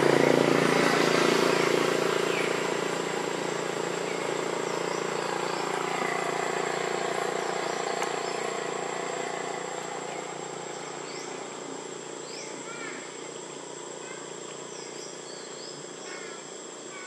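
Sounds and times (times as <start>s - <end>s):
engine drone: 0.0s - 17.0s
high insect whine: 0.0s - 17.0s
bird chirps: 14.6s - 16.3s.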